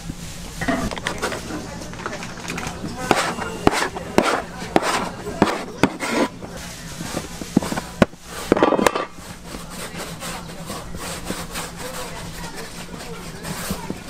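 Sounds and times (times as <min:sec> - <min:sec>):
background voices: 0:00.4 - 0:08.6.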